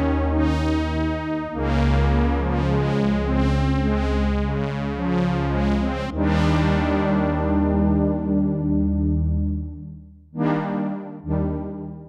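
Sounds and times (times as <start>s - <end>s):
synthesizer playing sustained chords: 5.8s - 12.0s
low bass note: 7.7s - 10.2s.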